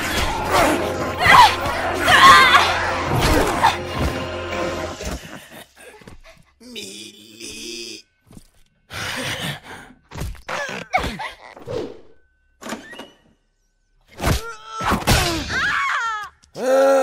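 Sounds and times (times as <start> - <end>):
grunts and pained cries: 5.0 - 8.1, 14.4 - 17.0.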